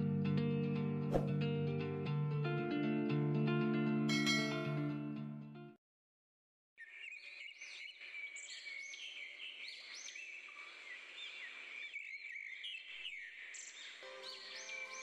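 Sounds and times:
birds chirping and calling: 6.8s - 15.0s.

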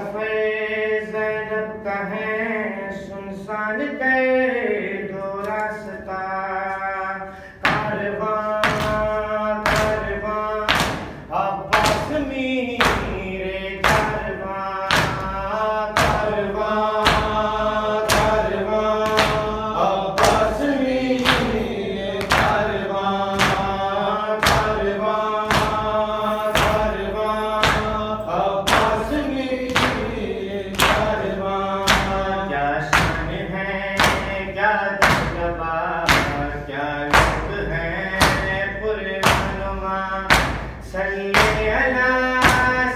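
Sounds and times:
man chanting a lament: 0.0s - 42.9s
rhythmic chest beating slaps: 6.6s - 42.9s.

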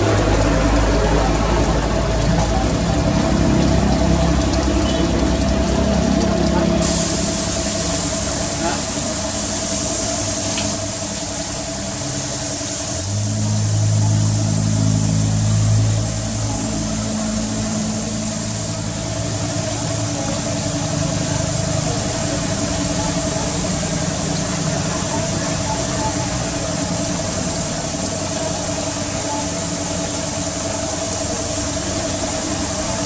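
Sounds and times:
deep hum: 0.0s - 33.0s
motor running steadily: 0.0s - 33.0s
constant high hiss: 6.8s - 33.0s.

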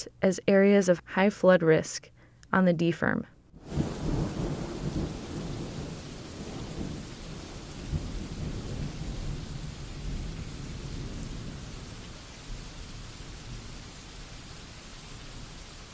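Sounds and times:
low rumble of thunder: 3.6s - 15.9s
steady rain: 3.6s - 15.9s.

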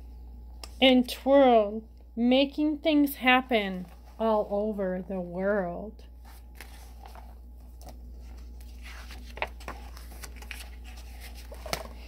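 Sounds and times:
steady low hum: 0.0s - 12.0s
book pages turning: 6.2s - 12.0s.

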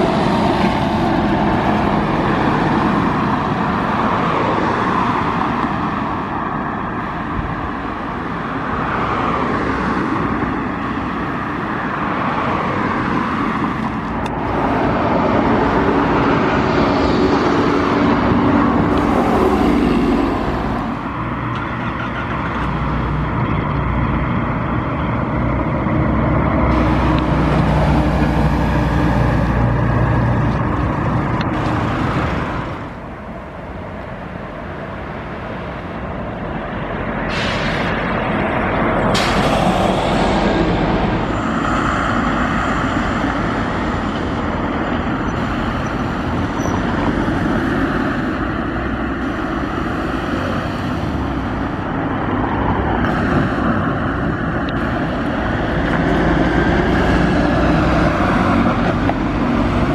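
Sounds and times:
diesel buses driving past: 0.0s - 59.9s
short air hiss: 37.3s - 38.0s.

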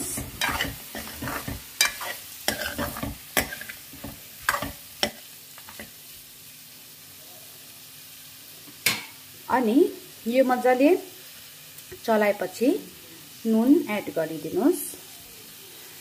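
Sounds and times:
metal ladle scraping a pan: 0.0s - 5.9s
meat sizzling: 0.0s - 16.0s.

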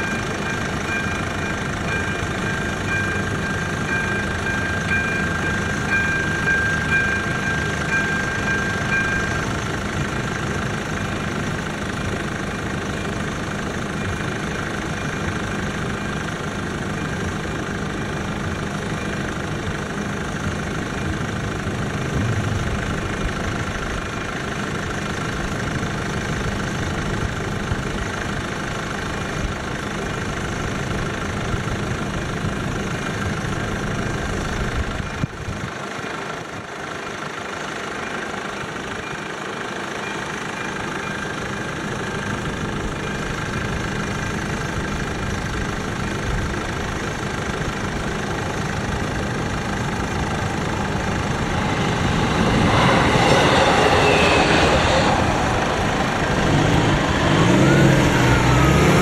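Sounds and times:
train passing: 0.0s - 26.0s, 47.4s - 59.0s
car engines idling: 0.0s - 59.0s
level-crossing warning bell: 0.0s - 59.0s
rising and falling tone: 21.8s - 23.9s, 50.0s - 59.0s.

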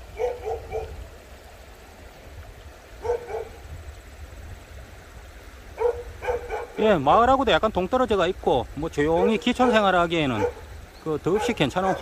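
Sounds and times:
dog barking: 0.1s - 1.0s, 3.0s - 3.6s, 5.8s - 6.8s, 9.1s - 10.7s, 11.3s - 12.0s.

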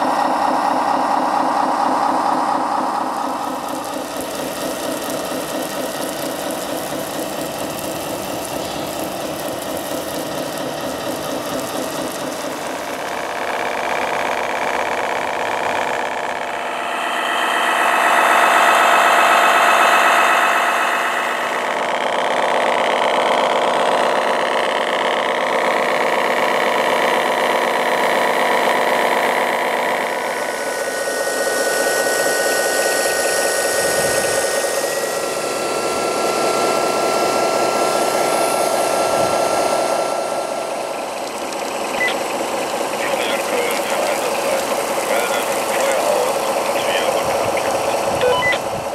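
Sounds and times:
fire truck engine running: 0.0s - 48.9s
thin steady tones: 15.8s - 22.2s.

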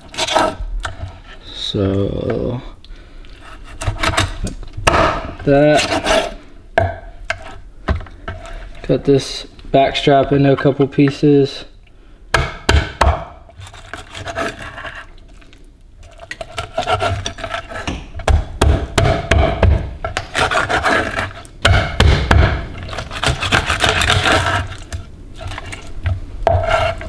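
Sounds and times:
knife sawing through meat: 20.4s - 21.4s, 23.1s - 24.8s.

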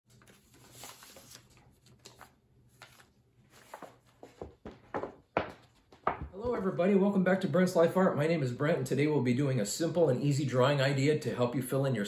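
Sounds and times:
paper rustling and sliding: 0.1s - 4.6s.

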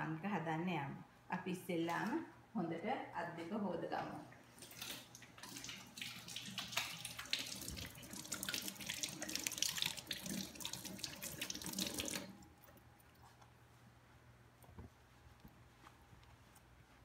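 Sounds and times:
hands washing under water: 4.5s - 12.4s.

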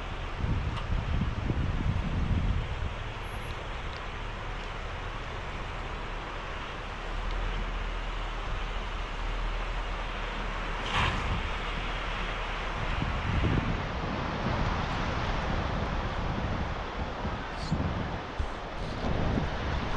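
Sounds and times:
wind on microphone: 0.0s - 5.0s, 10.9s - 19.9s
low engine rumble: 0.0s - 19.9s.

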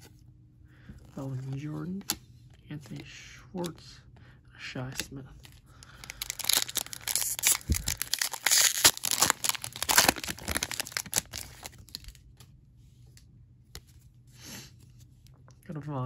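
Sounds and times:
foil wrapper tearing and crinkling: 5.9s - 12.4s.

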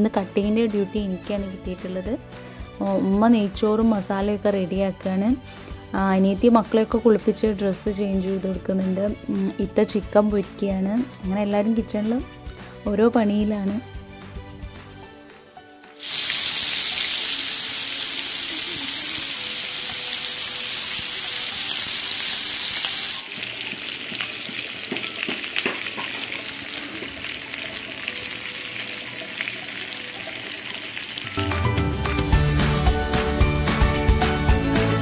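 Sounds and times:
chicken frying in oil sizzling: 16.0s - 31.6s.

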